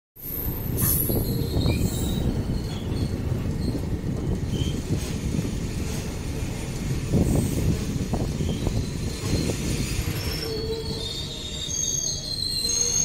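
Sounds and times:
train wheels rumbling on rail: 0.2 - 13.0
high wheel squeals: 0.3 - 4.9, 8.2 - 13.0.

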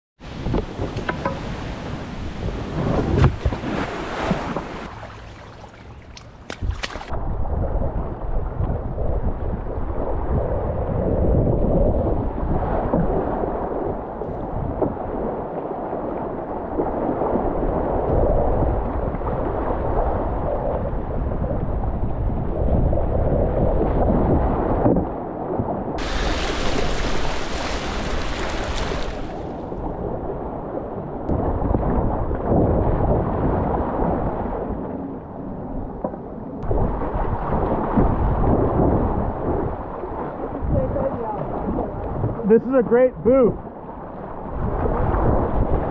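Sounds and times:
wind buffeting microphone: 0.2 - 45.9
water splashing: 0.8 - 7.2, 26.0 - 30.3
water rushing through rapids: 26.0 - 29.6.

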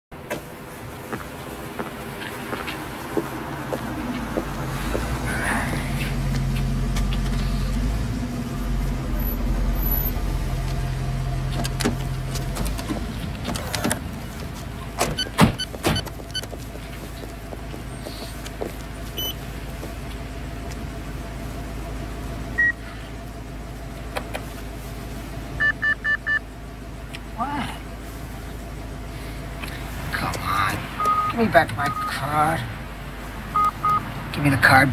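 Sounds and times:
car engine running: 0.1 - 34.9
street traffic: 0.1 - 34.9
short electronic beeps: 19.2 - 19.4, 22.6 - 22.8, 25.6 - 26.4, 31.0 - 32.2, 33.6 - 34.0.

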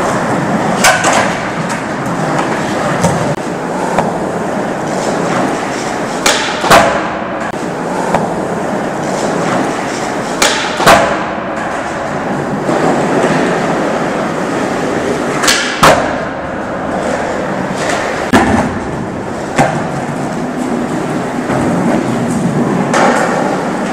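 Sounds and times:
skateboard wheels rolling on concrete: 0.0 - 23.9
skateboard wooden clacks: 0.8 - 4.2, 4.9 - 8.4, 9.0 - 11.9, 21.4 - 23.9.

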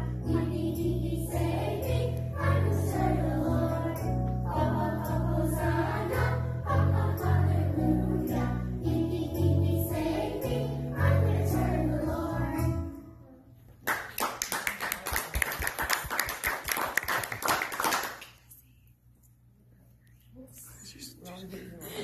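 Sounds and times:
children's choir singing: 0.0 - 13.0
recorded backing music: 0.0 - 13.1
applause: 13.8 - 18.4.

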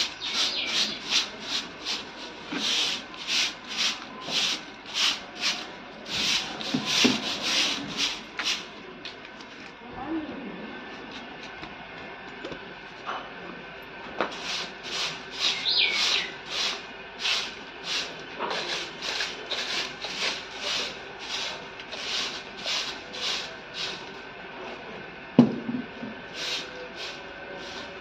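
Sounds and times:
stick broom sweeping concrete: 0.0 - 8.8, 14.2 - 24.2, 26.3 - 28.0.

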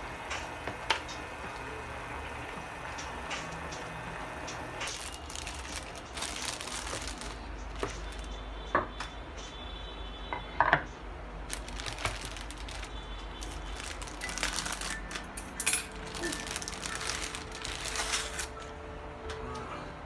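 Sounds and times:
plastic wrapping crinkling: 4.8 - 8.4, 11.4 - 18.7.

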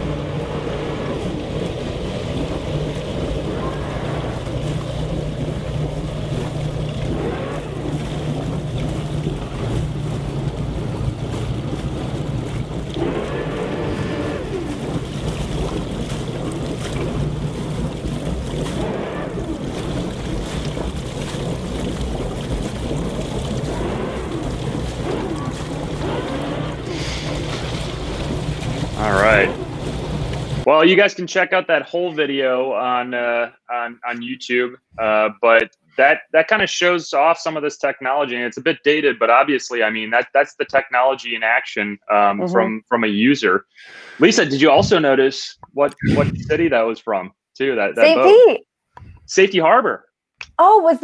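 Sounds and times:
boat engines idling: 0.0 - 30.7, 43.9 - 45.2, 48.0 - 48.6.

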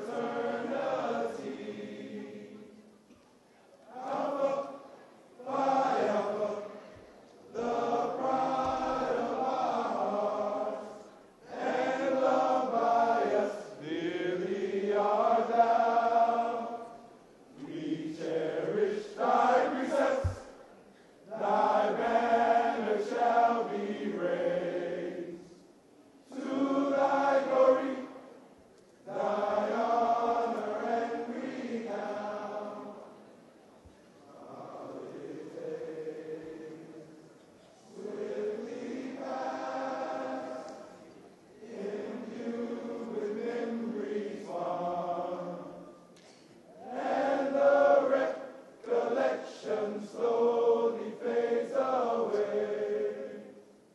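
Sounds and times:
men singing in unison: 29.1 - 32.9, 46.8 - 53.5.

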